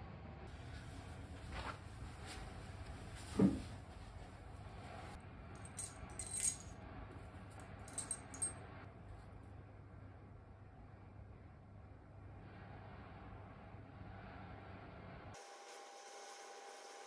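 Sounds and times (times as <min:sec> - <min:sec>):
jewelry clinking and jingling: 0:05.6 - 0:06.7, 0:07.8 - 0:08.5.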